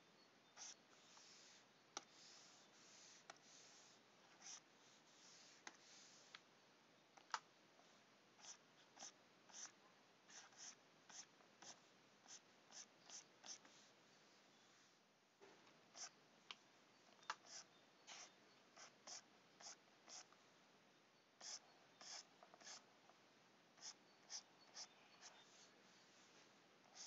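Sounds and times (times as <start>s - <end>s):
stylus scratching on tablet: 0.6s - 6.3s, 8.4s - 13.9s, 15.9s - 16.2s, 17.4s - 20.3s, 21.4s - 22.9s, 23.8s - 26.3s.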